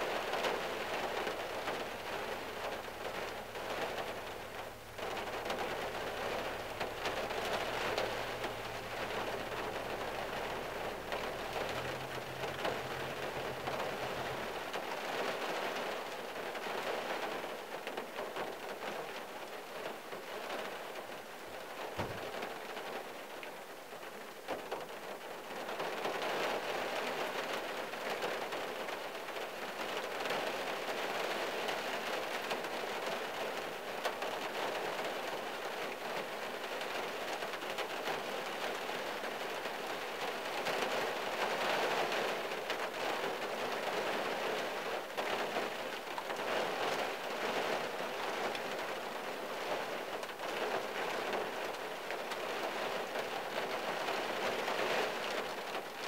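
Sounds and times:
rain on car roof: 0.0s - 56.0s
low thump: 22.0s - 22.4s.

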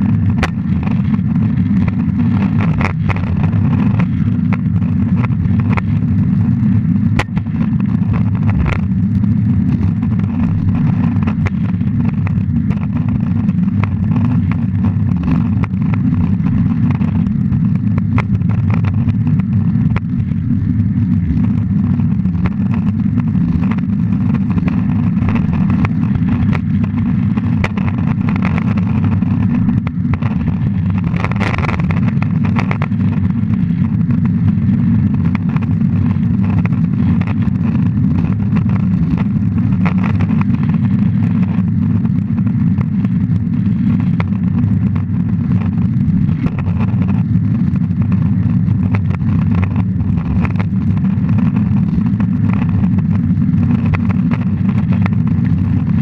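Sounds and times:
longboard wheels rolling on asphalt: 0.0s - 56.0s.

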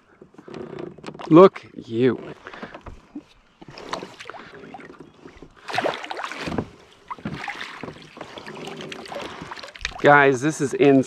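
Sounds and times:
water splashing beside a kayak: 2.5s - 10.4s.

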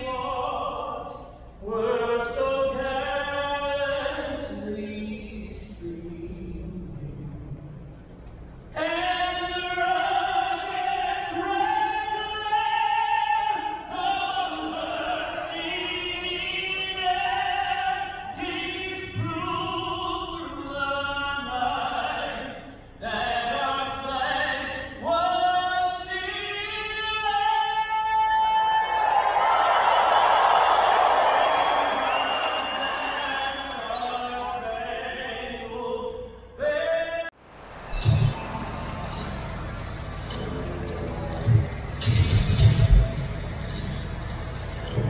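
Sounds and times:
person singing anthem over speakers: 0.0s - 45.0s
crowd cheering: 28.7s - 34.0s, 37.4s - 45.0s.

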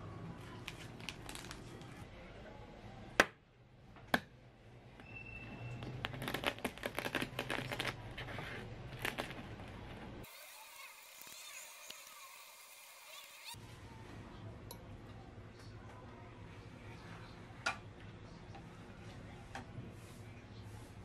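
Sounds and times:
eggshell crackling: 5.9s - 8.2s, 8.8s - 9.9s.

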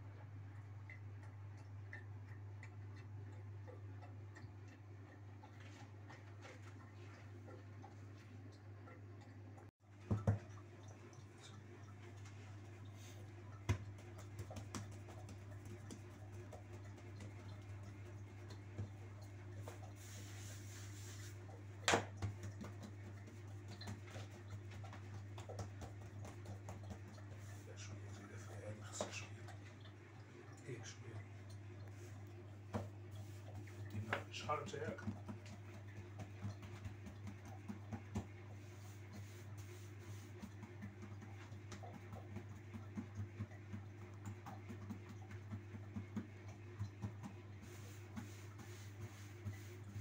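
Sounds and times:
fingertips patting dough: 13.0s - 29.2s, 32.7s - 50.0s
dough slapped onto countertop: 21.8s - 22.8s.

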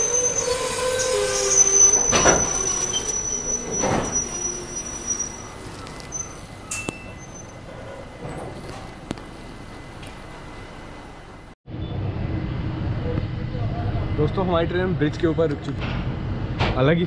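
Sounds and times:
train brake squeal: 0.0s - 8.6s.

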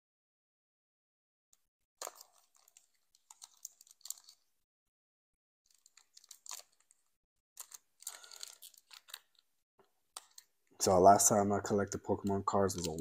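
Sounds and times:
foil wrapper crinkling and tearing: 2.0s - 4.4s, 5.7s - 9.5s, 12.6s - 13.0s.

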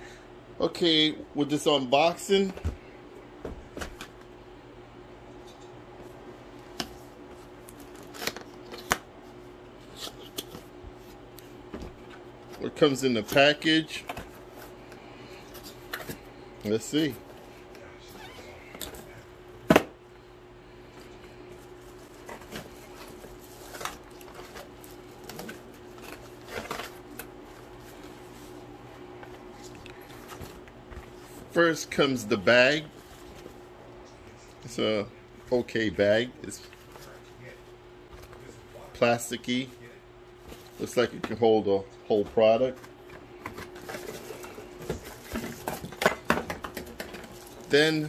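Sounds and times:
faint steady hum: 0.0s - 48.0s
cardboard clicks and rustles: 21.8s - 28.2s.

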